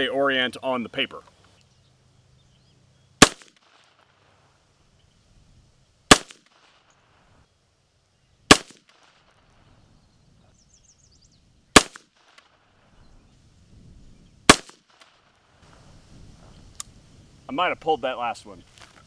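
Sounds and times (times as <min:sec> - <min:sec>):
rifle shots with echo: 0:03.2 - 0:04.3, 0:06.1 - 0:06.9, 0:08.5 - 0:09.4, 0:11.7 - 0:12.6, 0:14.5 - 0:15.3.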